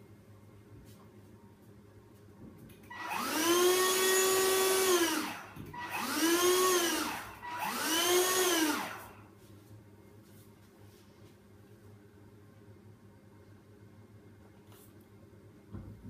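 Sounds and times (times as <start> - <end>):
handheld vacuum motor whine: 2.9 - 9.2.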